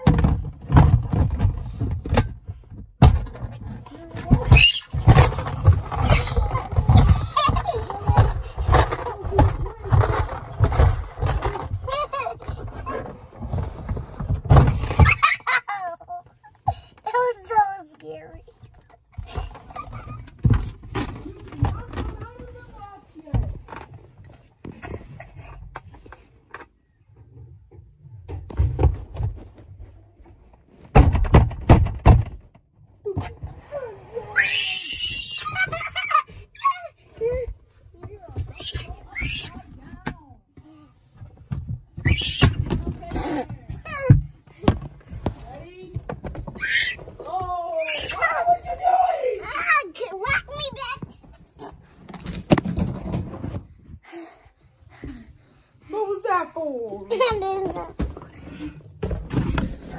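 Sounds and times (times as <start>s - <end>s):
thumping and scraping on microphone: 0.2s - 15.2s, 50.2s - 54.0s.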